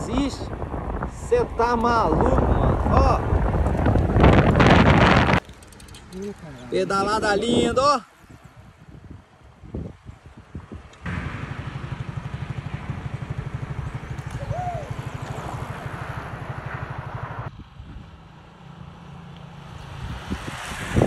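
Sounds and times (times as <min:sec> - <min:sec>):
wind noise: 0:00.0 - 0:18.5, 0:19.6 - 0:21.0
vehicle engine running: 0:11.1 - 0:17.6.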